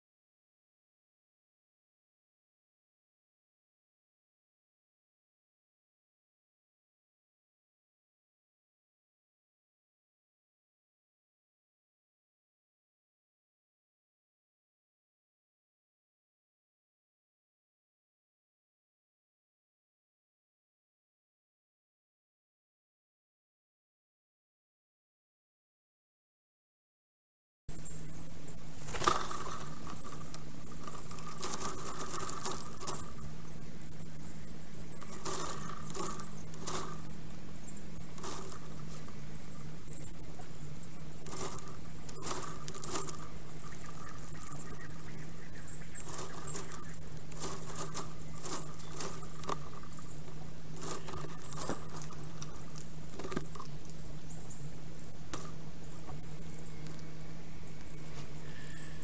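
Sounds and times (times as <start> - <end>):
forest birdsong chatter: 27.7 - 59.0
low hum: 27.7 - 59.0.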